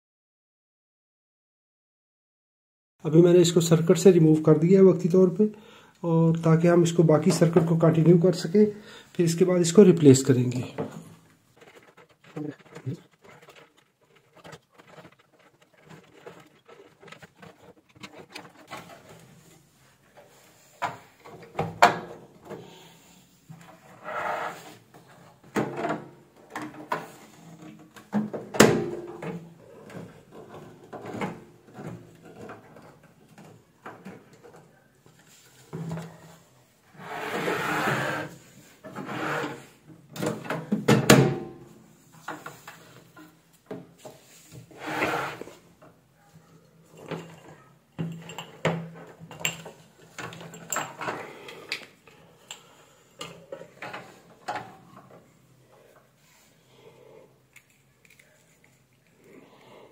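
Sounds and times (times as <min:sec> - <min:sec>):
clicks knocks and scraping on metal: 0:10.7 - 0:22.7, 0:24.8 - 0:36.3, 0:46.8 - 0:55.3.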